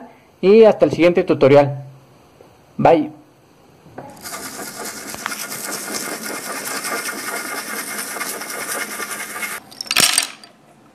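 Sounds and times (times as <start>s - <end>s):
rapid scratchy rattle: 4.2s - 9.6s.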